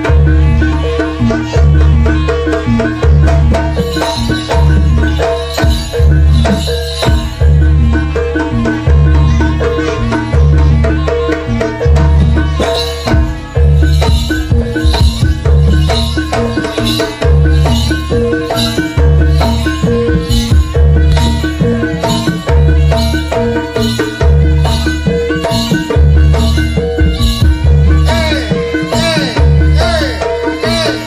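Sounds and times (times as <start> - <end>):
drums beating heavy rhythm: 0.0 - 31.0
mallet-struck metal instruments: 0.0 - 31.0
bright jingling: 3.6 - 8.5, 11.8 - 31.0.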